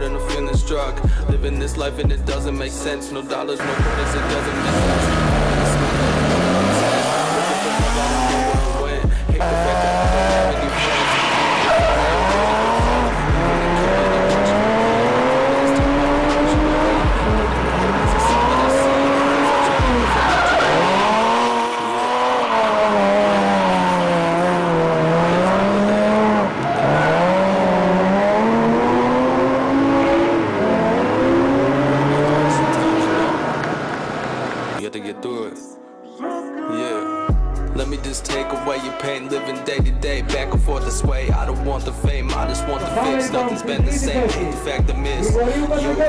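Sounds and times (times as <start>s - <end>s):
music: 0.0s - 21.6s, 34.8s - 46.0s
car engine revving: 3.6s - 34.8s
tyre squeal: 10.4s - 14.7s, 17.8s - 24.0s.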